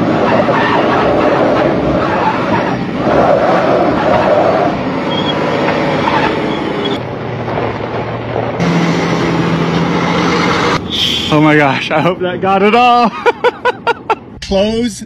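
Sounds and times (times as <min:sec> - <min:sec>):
engine drone: 0:00.0 - 0:14.4
rushing wind: 0:00.0 - 0:14.4
road noise: 0:00.0 - 0:15.0.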